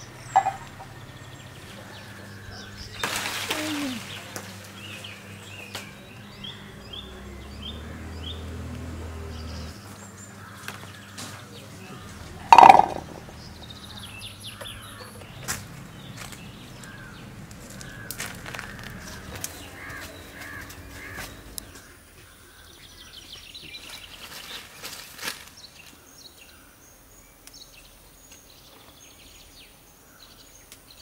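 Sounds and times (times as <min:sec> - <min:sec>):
faint bird chirps: 0:00.0 - 0:04.2
crow caw: 0:16.8 - 0:21.4.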